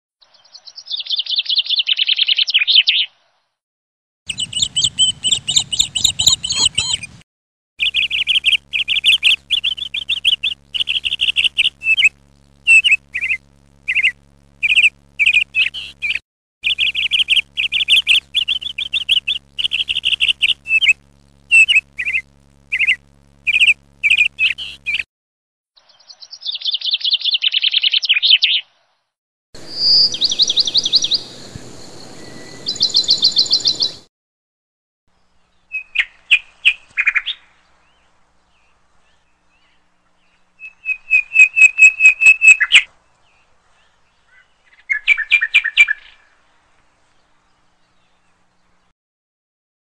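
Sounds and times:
buzzy bird trill: 4.3s - 7.2s, 7.8s - 25.1s, 29.6s - 34.0s, 40.4s - 42.9s
high bird chirps: 4.3s - 7.2s, 7.8s - 25.1s, 29.6s - 34.0s, 40.6s - 42.9s
trilled whistles: 40.6s - 42.9s.

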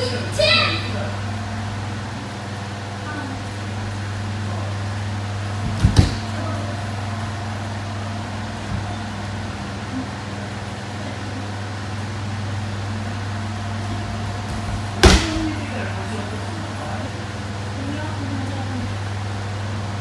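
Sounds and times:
electric fans humming: 0.0s - 20.0s
body thud on mats: 5.6s - 6.3s, 14.5s - 15.6s.

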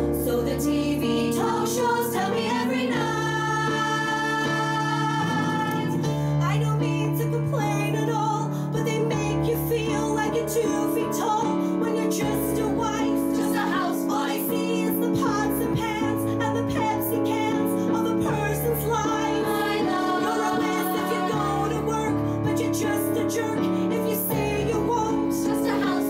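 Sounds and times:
keyboard sustained chords: 0.0s - 26.0s
woman singing: 0.0s - 26.0s
women's chorus singing: 0.2s - 6.1s, 12.0s - 26.0s.

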